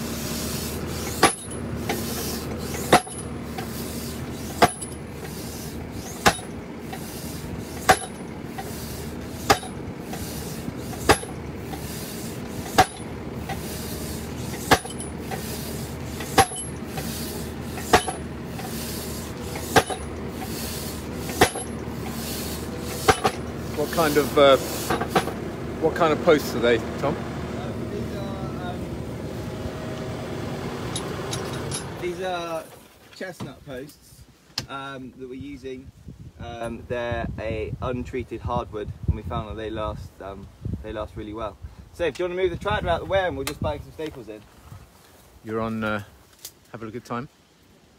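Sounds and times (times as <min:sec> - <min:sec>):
tractor engine running: 0:00.0 - 0:32.9
post driver thuds: 0:01.0 - 0:02.0, 0:02.7 - 0:03.7, 0:04.5 - 0:05.4, 0:06.1 - 0:07.1, 0:07.8 - 0:08.7, 0:09.3 - 0:11.9, 0:12.5 - 0:13.7, 0:14.4 - 0:15.5, 0:16.2 - 0:18.8, 0:19.4 - 0:20.6, 0:21.2 - 0:22.2, 0:22.9 - 0:23.5.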